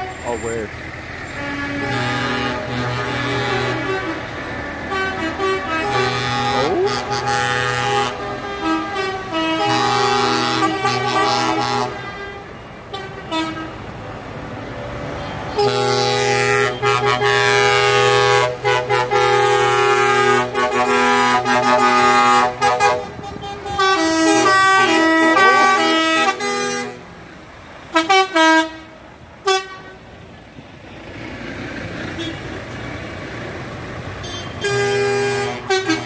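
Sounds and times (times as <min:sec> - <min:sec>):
lorry air horns: 0:01.4 - 0:04.3, 0:04.9 - 0:13.8, 0:15.6 - 0:27.1, 0:27.9 - 0:30.0, 0:34.2 - 0:36.0.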